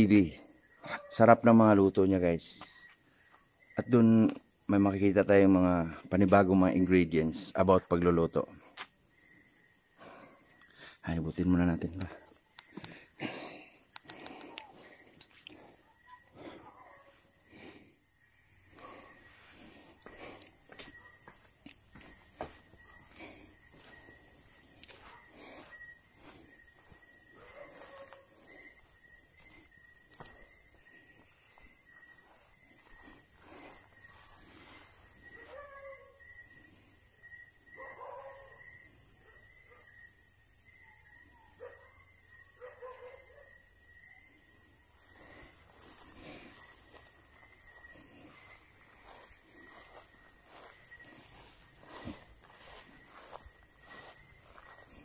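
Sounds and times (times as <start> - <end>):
night crickets chirping: 0.0 - 55.0
distant dog barking: 16.2 - 17.3, 18.7 - 19.3, 20.9 - 21.4, 22.8 - 23.4, 24.9 - 25.7, 27.3 - 28.6, 35.3 - 36.2, 37.8 - 38.6, 41.4 - 43.6
footsteps through tall grass: 18.8 - 35.9, 44.9 - 55.0.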